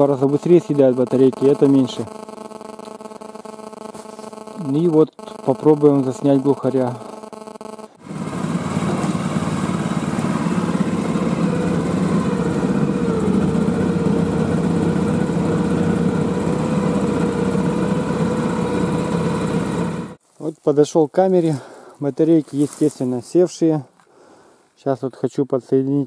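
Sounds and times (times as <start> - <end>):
small vehicle engine running: 0.0 - 20.2.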